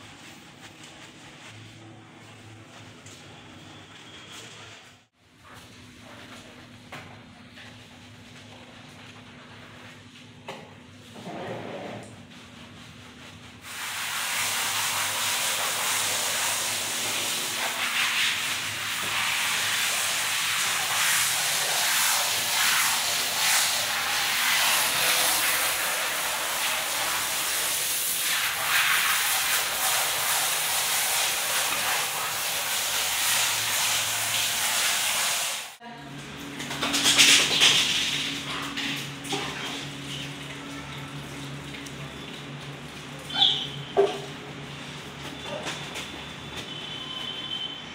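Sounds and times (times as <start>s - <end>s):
shower head spraying water: 13.6s - 35.8s.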